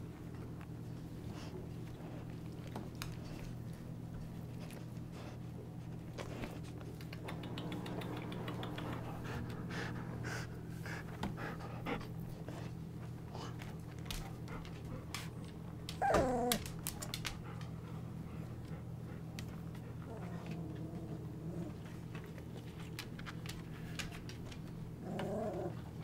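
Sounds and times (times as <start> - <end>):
puppies shuffling and snuffling: 0.0 - 26.0
puppy whining: 15.9 - 16.8, 25.0 - 26.0.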